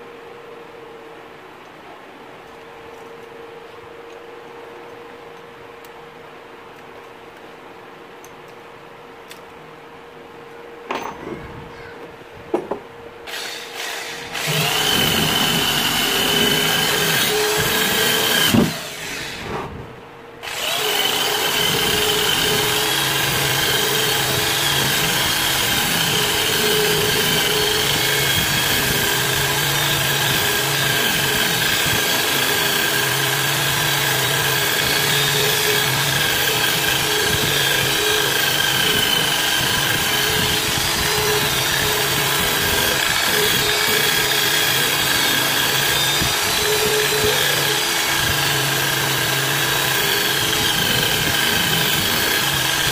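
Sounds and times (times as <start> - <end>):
drill motor whine: 13.3 - 19.6, 20.4 - 52.9.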